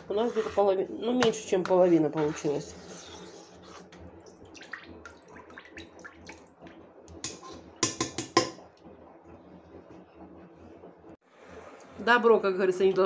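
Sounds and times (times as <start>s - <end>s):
liquid sloshing and dripping: 4.2s - 6.8s.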